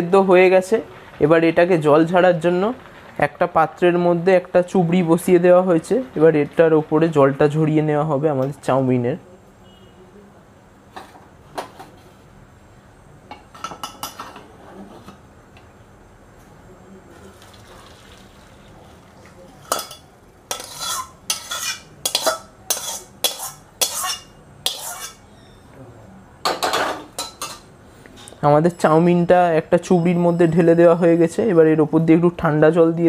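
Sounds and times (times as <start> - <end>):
metal spatula scraping a wok: 19.6 - 25.6.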